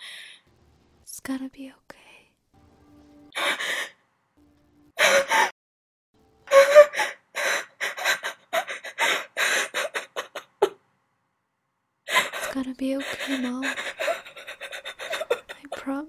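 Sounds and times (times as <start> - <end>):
woman sobbing: 3.4 - 3.9, 5.0 - 5.5, 6.5 - 10.8, 12.1 - 16.0.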